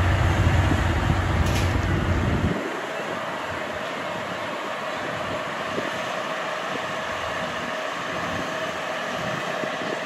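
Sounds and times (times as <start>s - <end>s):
train rumbling on rails: 0.0s - 10.0s.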